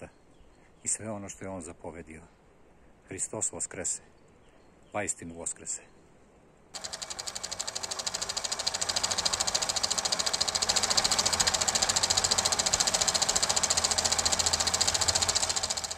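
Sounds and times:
film projector clattering: 6.8s - 15.9s.

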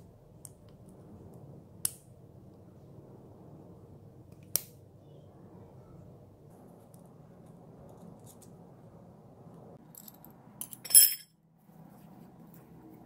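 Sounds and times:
faint steady hum: 0.0s - 13.0s
wrench clinking against metal: 10.0s - 11.3s.

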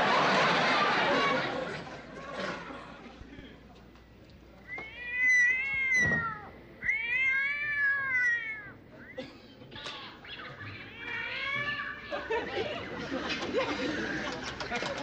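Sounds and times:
cat yowling: 4.7s - 8.8s, 10.2s - 12.3s.

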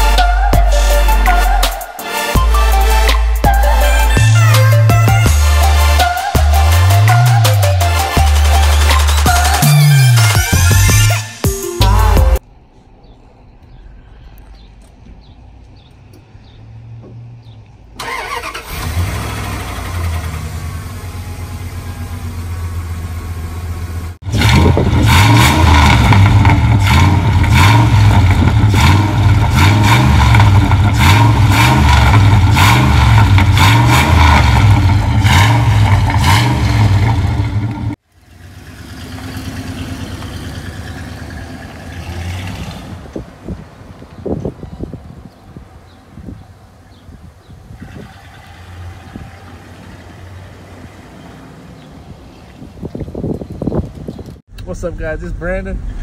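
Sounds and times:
truck engine starting and idling: 0.0s - 56.0s
engine exhaust pulsing: 11.9s - 56.0s.

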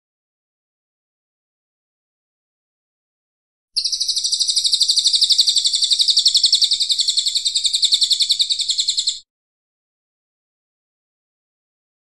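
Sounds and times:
songbird trilling: 3.8s - 9.2s.

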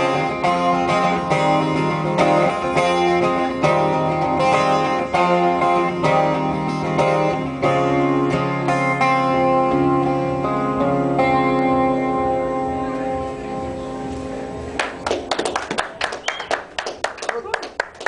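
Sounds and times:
acoustic guitar strumming: 0.0s - 15.0s
small audience clapping: 14.8s - 18.0s.

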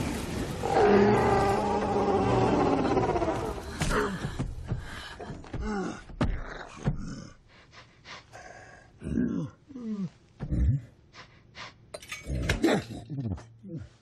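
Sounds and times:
monster roar: 0.6s - 3.6s.

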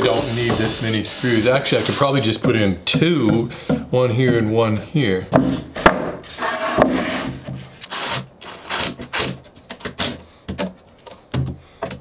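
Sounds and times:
wooden tabletop scraping and knocking: 5.4s - 7.8s.

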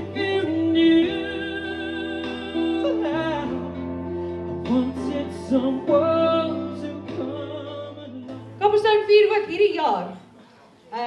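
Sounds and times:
man singing into microphone: 0.0s - 8.6s
instrumental backing music: 0.0s - 10.8s.

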